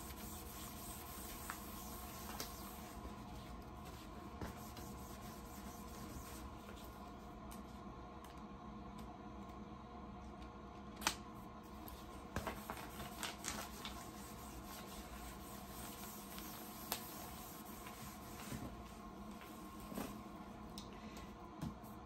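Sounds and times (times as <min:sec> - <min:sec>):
squeegee rubbing and scraping: 0:00.0 - 0:06.8, 0:12.5 - 0:19.6
low steady hum: 0:00.0 - 0:22.0.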